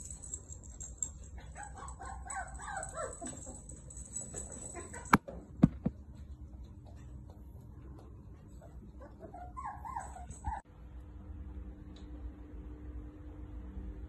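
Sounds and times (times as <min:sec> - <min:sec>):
puppies whining: 0:00.0 - 0:05.2, 0:08.5 - 0:10.6
sharp knocks: 0:05.6 - 0:06.0.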